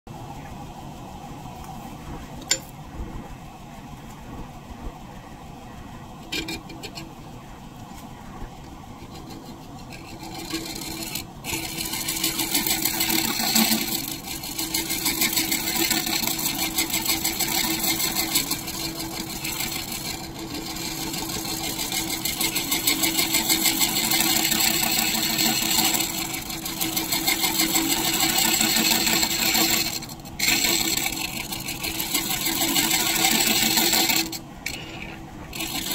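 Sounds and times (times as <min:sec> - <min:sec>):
wood lathe spinning: 0:01.0 - 0:35.9
scraper cutting wood: 0:08.9 - 0:35.9.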